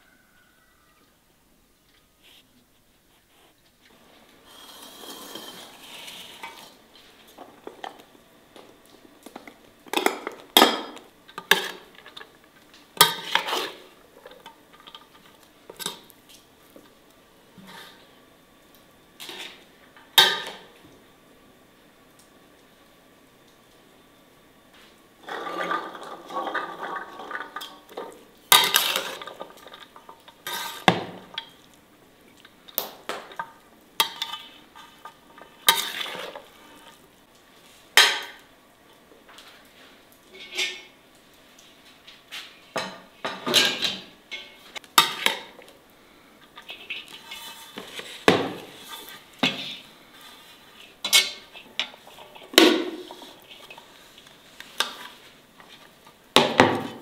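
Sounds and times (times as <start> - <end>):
metal spoon scraping enamel basin: 4.5 - 6.7, 34.0 - 36.9, 46.6 - 53.8.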